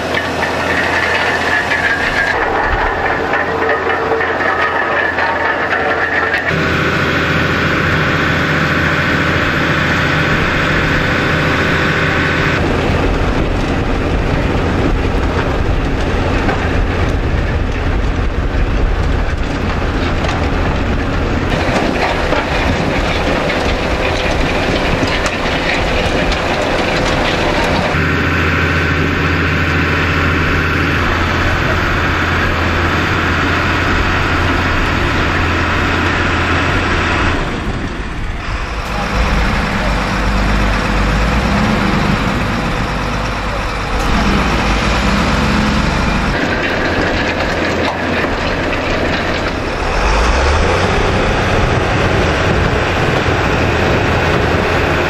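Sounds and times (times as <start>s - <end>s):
beets rattling on conveyors: 0.0s - 6.9s, 12.6s - 28.0s, 38.2s - 55.0s
heavy diesel engine running: 0.0s - 55.0s.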